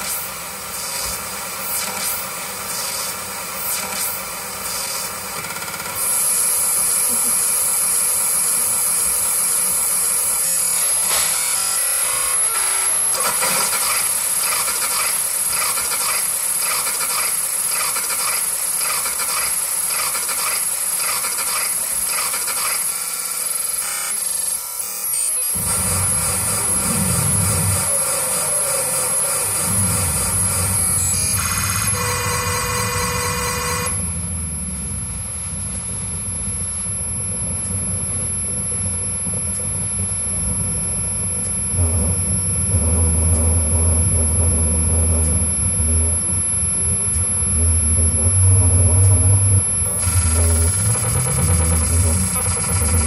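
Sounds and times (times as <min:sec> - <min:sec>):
thin high whine: 0:23.3 - 0:53.0
low noisy drone: 0:25.5 - 0:53.0
pulsing electronic noise music: 0:25.5 - 0:53.0.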